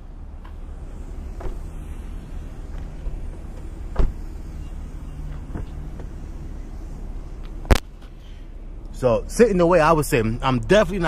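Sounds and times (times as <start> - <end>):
faint hum: 0.0 - 11.0
steady low rumble: 0.0 - 11.0
car door knocks and bumps: 1.3 - 1.7, 2.7 - 4.4, 5.3 - 6.2.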